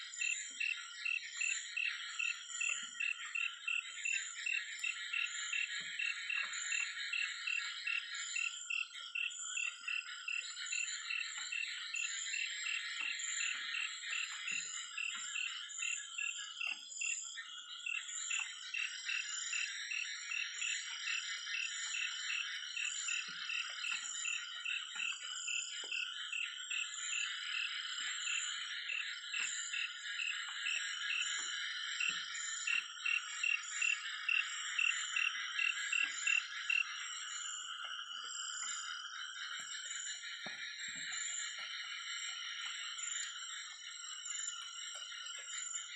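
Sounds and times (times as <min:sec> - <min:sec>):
frogs and insects trilling: 0:00.0 - 0:45.9.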